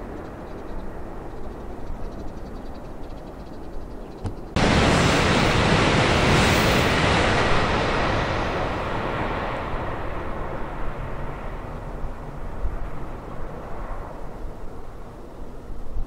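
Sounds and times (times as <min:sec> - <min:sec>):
high-speed train rushing past: 0:04.5 - 0:15.0.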